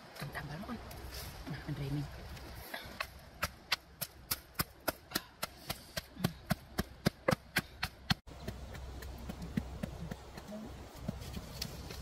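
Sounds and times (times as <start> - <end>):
wooden pestle pounding in mortar: 3.4 - 11.4.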